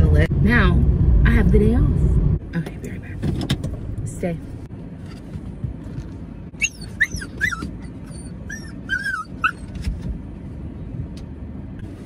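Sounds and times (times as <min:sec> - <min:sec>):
small dog whining: 0:06.6 - 0:09.8.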